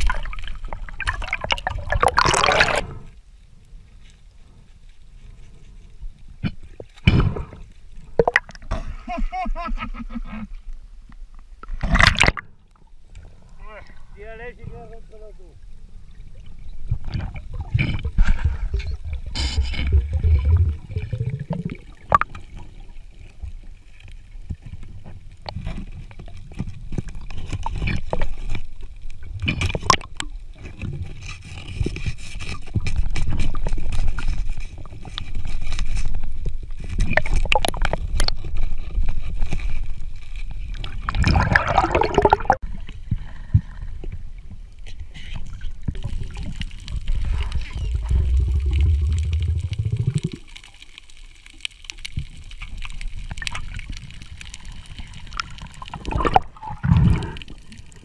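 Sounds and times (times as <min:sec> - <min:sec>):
underwater rumble: 0:15.0 - 0:58.0.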